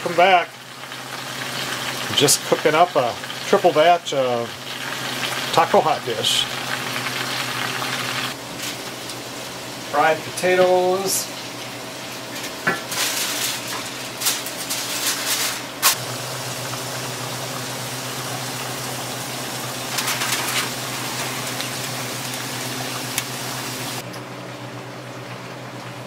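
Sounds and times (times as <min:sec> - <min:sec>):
food frying in pans: 0:00.0 - 0:24.0
aluminium foil crinkling: 0:12.8 - 0:16.0, 0:19.7 - 0:23.3.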